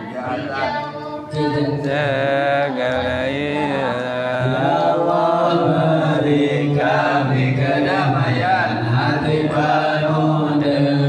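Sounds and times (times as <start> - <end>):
men chanting a prayer: 0.0 - 11.0.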